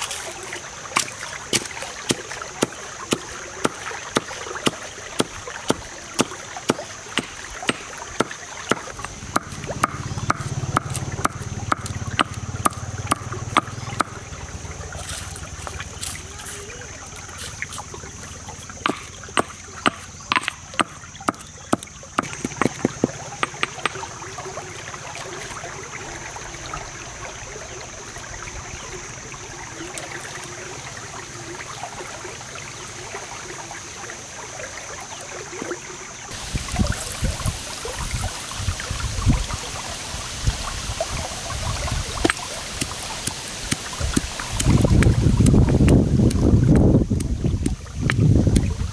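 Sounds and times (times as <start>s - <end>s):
stream water running: 0.0s - 48.9s
stone pestle pounding in mortar: 6.7s - 14.2s.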